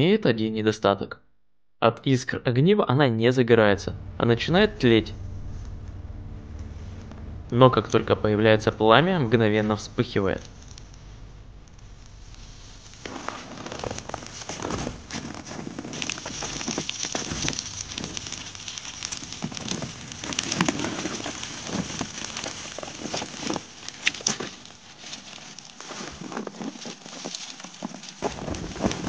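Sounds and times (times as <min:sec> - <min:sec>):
fire hissing: 0:03.8 - 0:26.3
small fire crackling: 0:03.8 - 0:29.0
fire pops and snaps: 0:09.4 - 0:29.0.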